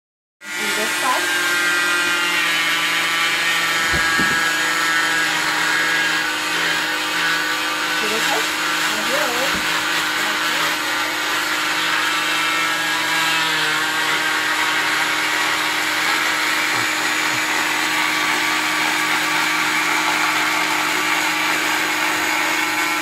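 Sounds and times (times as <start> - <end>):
oscillating cast saw cutting: 0.4 - 23.0
vacuum hose hum and hiss: 3.6 - 19.3.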